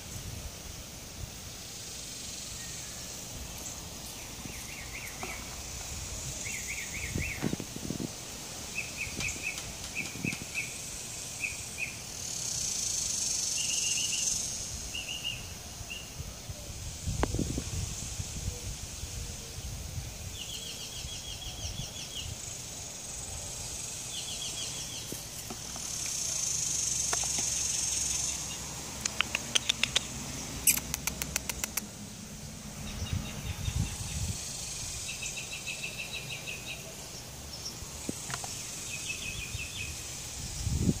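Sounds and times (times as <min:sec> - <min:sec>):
hiss: 0:00.0 - 0:32.4, 0:33.9 - 0:36.6
rapid chirping trills: 0:20.5 - 0:31.9
sharp clicks: 0:29.0 - 0:31.9.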